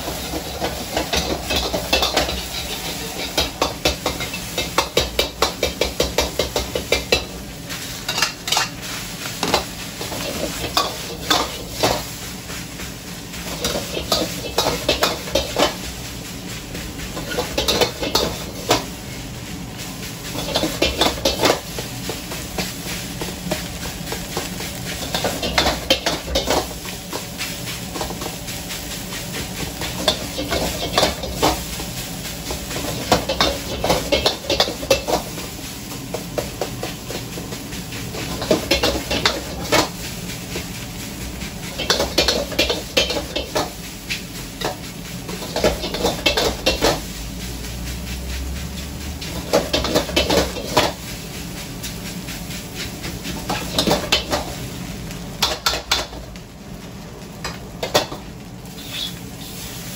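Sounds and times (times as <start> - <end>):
gas burner rushing: 0.0 - 59.9
rice sizzling: 0.0 - 59.9
metal ladle scraping a wok: 0.5 - 3.6.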